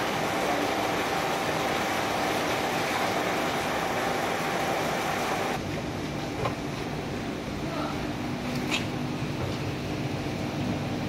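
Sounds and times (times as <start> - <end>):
mechanical running noise: 0.0 - 5.6.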